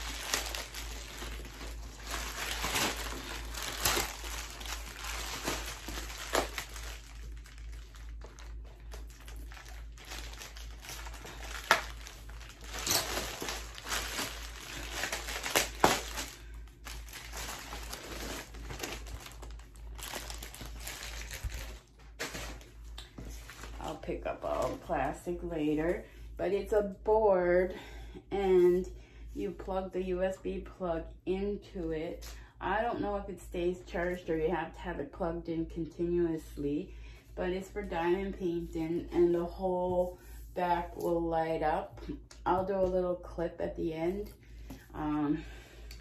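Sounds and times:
bubble wrap crinkling: 0:00.0 - 0:25.4, 0:38.6 - 0:41.1.

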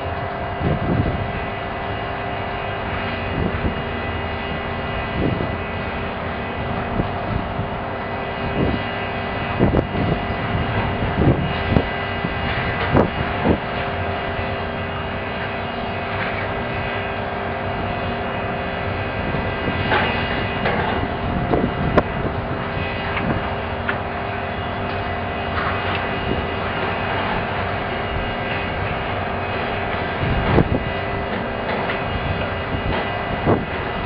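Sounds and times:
excavator engine drone: 0:00.0 - 0:34.0.

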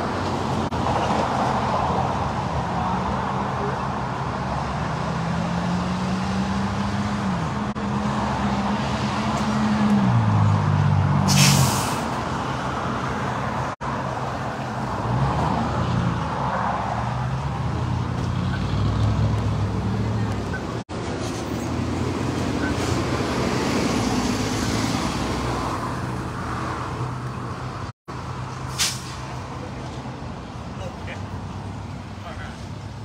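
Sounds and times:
tyre and road noise: 0:00.0 - 0:33.0
vehicles passing: 0:00.0 - 0:33.0
short loud hiss: 0:28.7 - 0:29.2.

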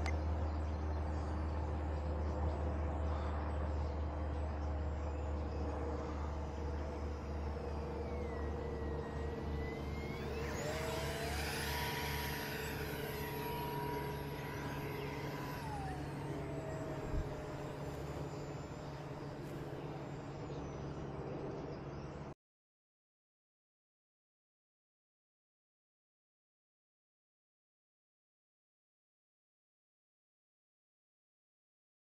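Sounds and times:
model plane motor whining: 0:00.0 - 0:21.3
steady low hum: 0:00.0 - 0:22.4.

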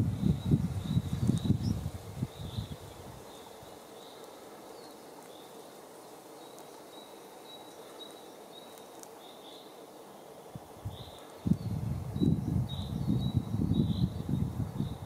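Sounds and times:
wind rumble on microphone: 0:00.0 - 0:03.3, 0:10.5 - 0:15.0
soft steady hiss: 0:00.0 - 0:15.0.

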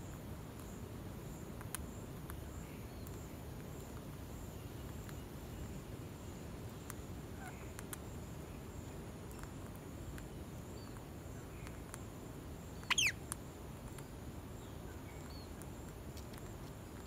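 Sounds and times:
low background noise: 0:00.0 - 0:17.0
parakeet shrill call: 0:12.8 - 0:13.2
bird pecking clicks: 0:15.6 - 0:16.8.

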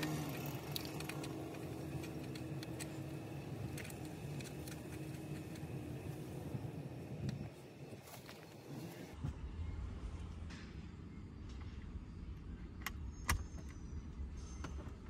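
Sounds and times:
small metallic clicks: 0:00.0 - 0:05.8.

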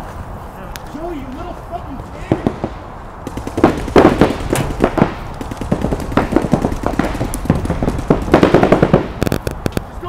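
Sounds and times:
paintball markers firing: 0:02.3 - 0:09.9.

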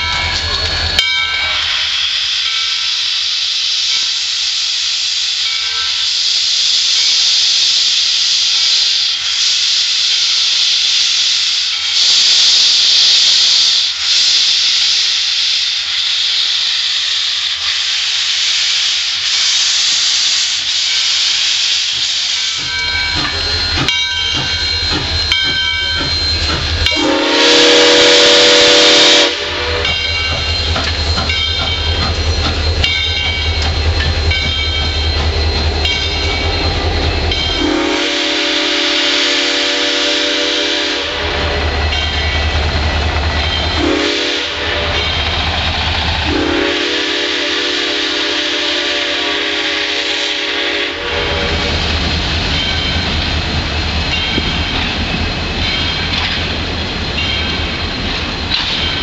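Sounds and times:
steam hissing: 0:00.2 - 0:59.0
steam whistle blast: 0:26.0 - 0:30.2, 0:37.5 - 0:41.6, 0:43.8 - 0:45.1, 0:46.3 - 0:51.8
locomotive wheels clattering: 0:29.8 - 0:37.6.

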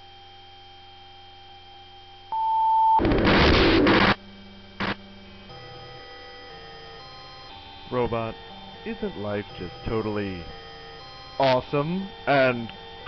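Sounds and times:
electronic droning tones: 0:00.0 - 0:13.0
held beep: 0:02.3 - 0:03.0
burst of static: 0:03.0 - 0:04.2, 0:04.8 - 0:05.0.

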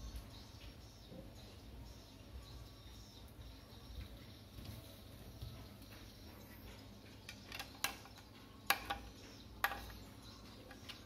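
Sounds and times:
screwdriver clicking on metal: 0:07.3 - 0:10.0.

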